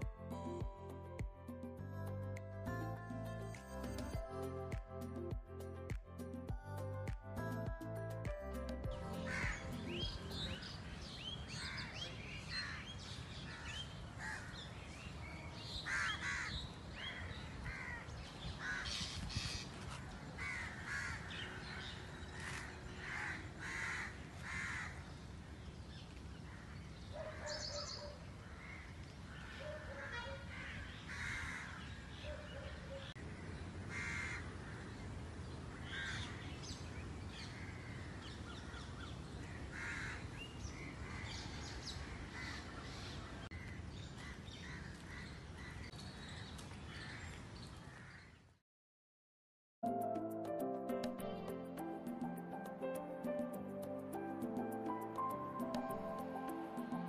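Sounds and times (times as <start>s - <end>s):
birds making harsh calls: 9.3s - 10.6s.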